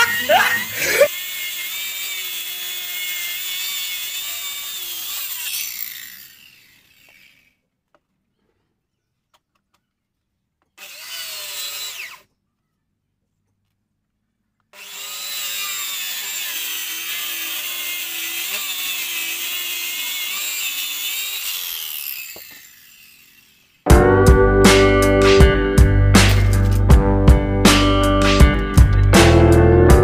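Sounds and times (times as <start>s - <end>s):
circular saw cutting wood: 0.0s - 7.6s, 10.8s - 12.3s, 14.7s - 23.9s, 26.2s - 26.9s.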